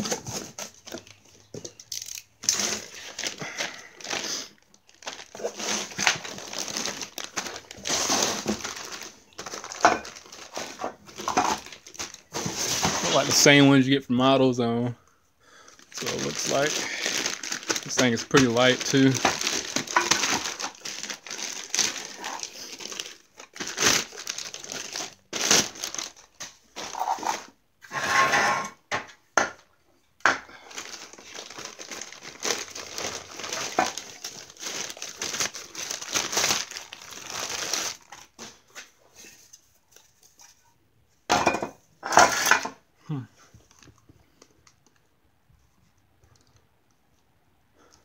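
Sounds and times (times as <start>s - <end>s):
plastic bag crinkling: 0.0s - 13.6s, 15.5s - 27.5s, 30.5s - 38.6s.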